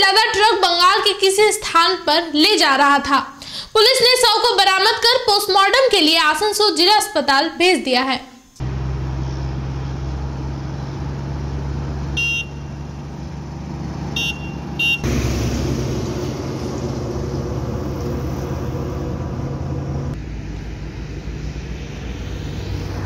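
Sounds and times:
highway traffic rumble: 8.6 - 23.0
vehicle horn toots: 12.1 - 12.9, 14.2 - 15.1.

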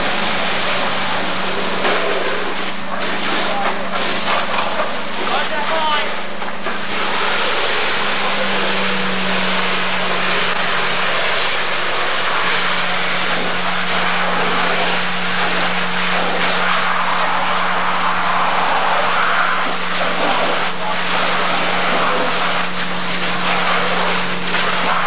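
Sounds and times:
fire engine pump motor drone: 0.0 - 25.0.

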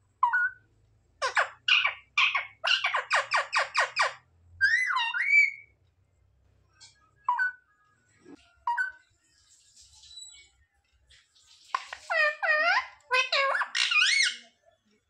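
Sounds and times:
parakeet squawking: 0.2 - 0.6, 1.2 - 5.7, 11.7 - 14.6.

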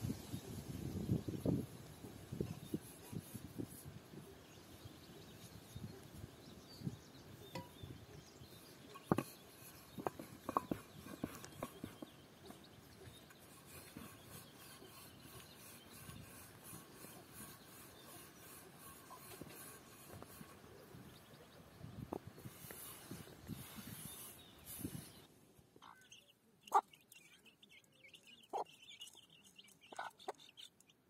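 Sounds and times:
rolling pin rubbing on dough: 2.3 - 4.2, 8.9 - 21.2, 22.3 - 25.2.

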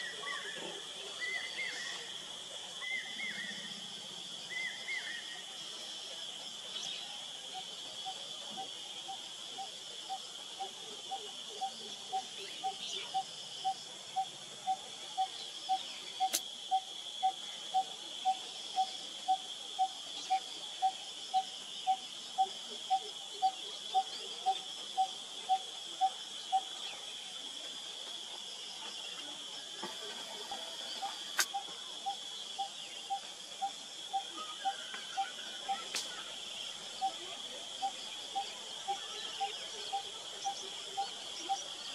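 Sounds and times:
high insect drone: 0.0 - 41.9
sharp click: 16.2 - 16.5, 31.3 - 31.6.

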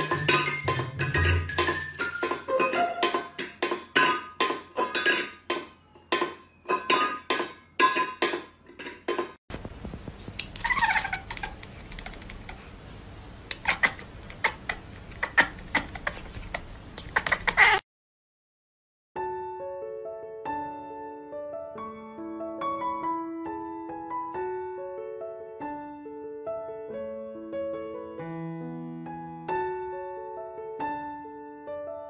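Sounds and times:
cat yowling: 17.1 - 17.8.

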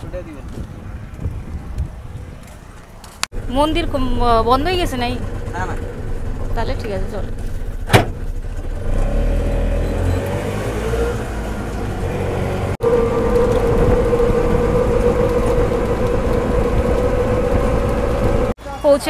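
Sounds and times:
road noise: 0.0 - 19.0
auto-rickshaw engine running: 3.3 - 18.6.

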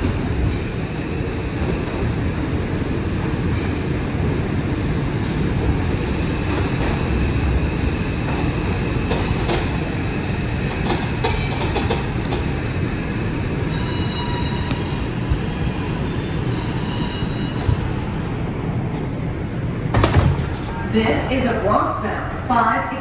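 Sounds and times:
train wheels rumbling on rails: 0.0 - 22.1
train brakes squealing: 13.7 - 15.1, 16.0 - 17.9.

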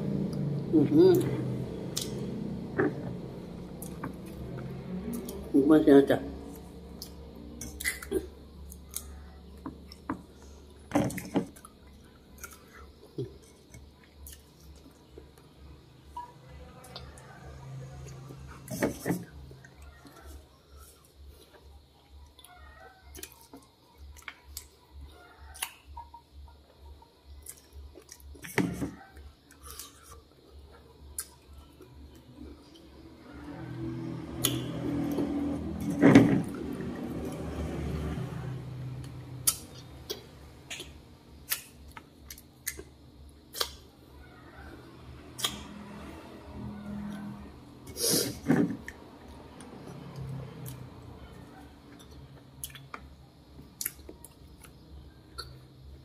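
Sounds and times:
person chewing berries: 0.3 - 2.4, 6.5 - 15.4, 29.2 - 32.9, 39.0 - 43.9, 51.8 - 55.6
wet mouth clicks and smacks: 39.4 - 42.9, 43.5 - 43.8, 45.4 - 45.6, 55.4 - 55.6
chewing with wet smacks: 51.8 - 55.8.

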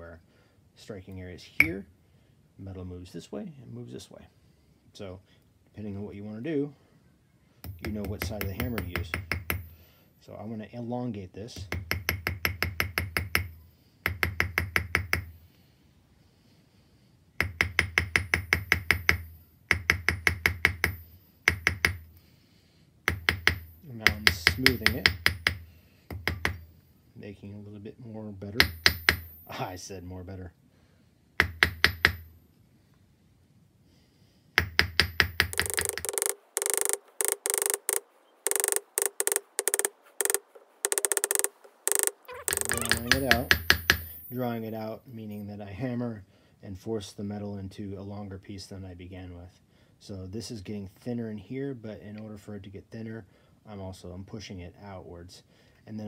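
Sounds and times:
hammer ringing on wire and steel block: 17.4 - 22.0, 23.1 - 25.6, 28.6 - 29.6, 31.5 - 32.4, 34.6 - 35.5, 42.8 - 44.6.

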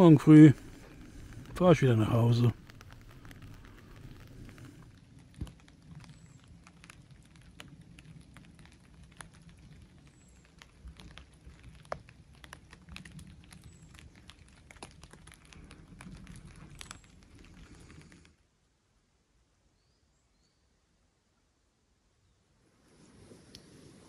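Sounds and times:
raindrops ticking on a tarp: 0.0 - 18.5
faint low rumble: 0.0 - 19.3.

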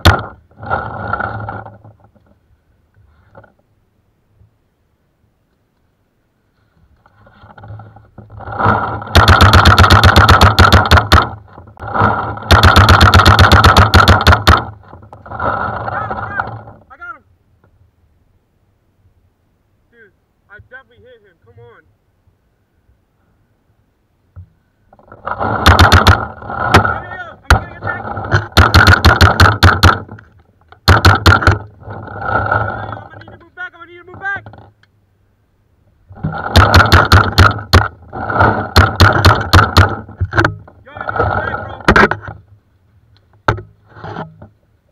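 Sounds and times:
paintball marker firing: 28.4 - 30.1.

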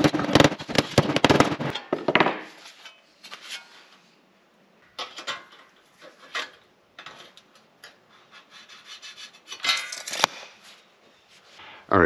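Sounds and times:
rubs and scrapes on metal: 5.9 - 11.6.

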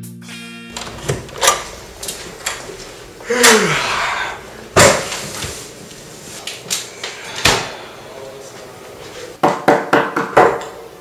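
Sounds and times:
knocking on a door: 9.4 - 10.6.

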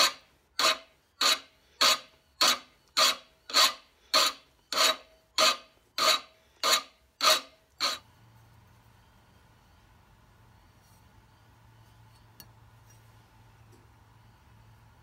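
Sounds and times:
file rasping on steel: 0.0 - 8.0.

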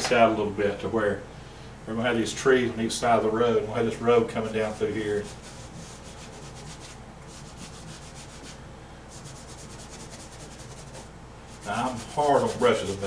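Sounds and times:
brush scrubbing paint on canvas: 4.4 - 13.0.

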